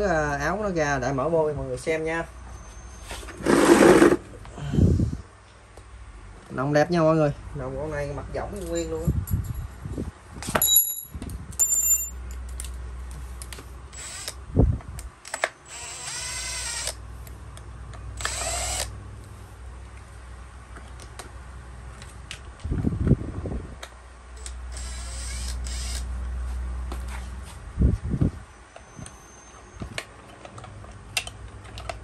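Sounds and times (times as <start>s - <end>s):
screwdriver scraping whirs: 2.8s - 4.2s, 13.9s - 14.4s, 15.2s - 17.0s, 18.2s - 18.9s, 24.4s - 26.1s.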